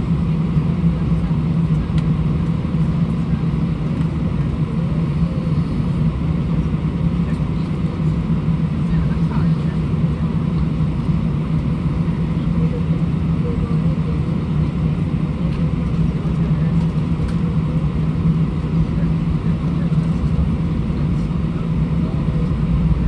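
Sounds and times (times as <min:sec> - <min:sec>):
aircraft cabin rumble: 0:00.0 - 0:23.0.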